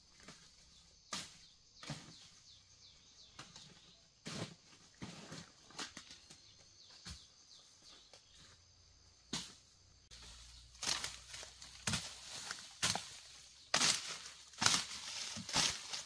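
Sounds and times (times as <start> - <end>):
dry leaves rustling and crackling: 10.1 - 16.0
twigs snapping: 10.8 - 16.0.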